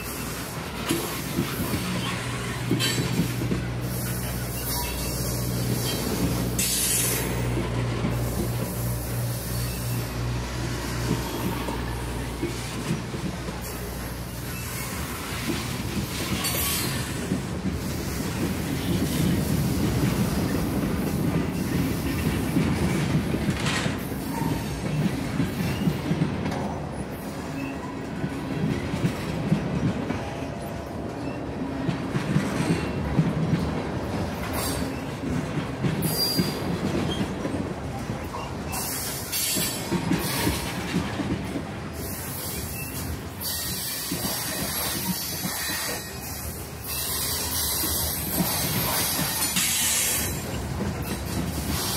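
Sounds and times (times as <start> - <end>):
train rumbling on rails: 0.0 - 51.9
high wheel squeals: 1.3 - 12.6, 13.6 - 17.2, 42.0 - 51.9.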